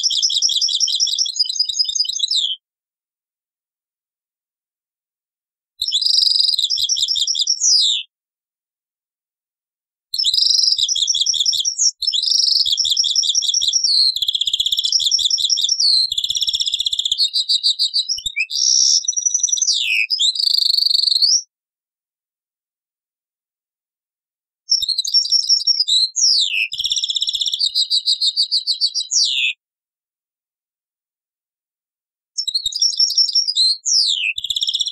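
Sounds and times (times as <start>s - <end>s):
goldfinch song: 0.0s - 2.6s, 5.8s - 8.1s, 10.2s - 21.5s, 24.7s - 29.6s, 32.4s - 34.9s.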